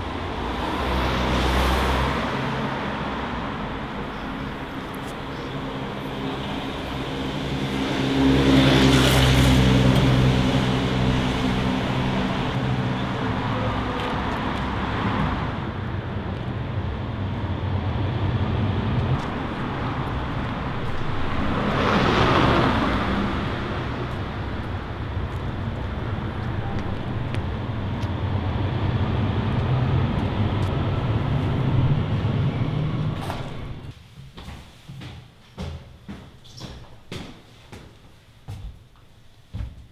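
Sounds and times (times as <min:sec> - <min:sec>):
vehicles passing by: 0:00.0 - 0:33.9
traffic rumble: 0:00.0 - 0:34.0.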